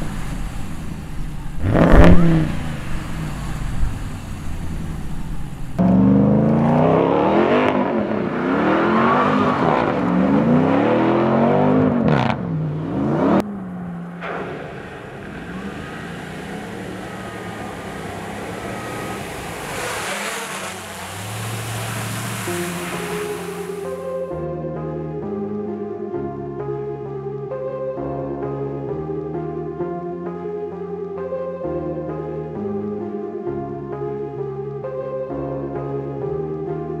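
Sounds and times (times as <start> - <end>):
water spraying from wheels: 0.0 - 5.8, 14.2 - 24.1
engine with faint whine: 0.0 - 24.3
truck engine revving: 0.0 - 24.3.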